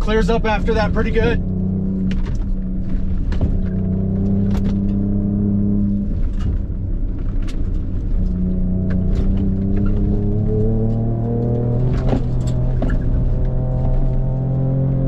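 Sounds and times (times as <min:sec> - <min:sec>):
knocks and rattles: 0:02.0 - 0:05.1.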